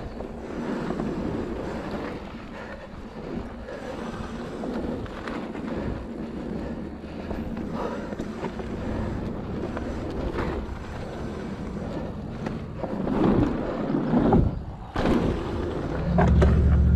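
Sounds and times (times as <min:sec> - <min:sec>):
bike tyres rumbling on gravel: 0:00.0 - 0:16.9
wind buffeting microphone: 0:00.0 - 0:16.9.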